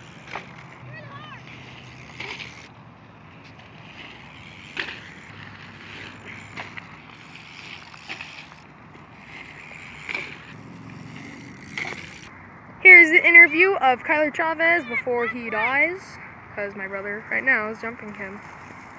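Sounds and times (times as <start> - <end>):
bikes rolling over gravel: 0.0 - 12.3.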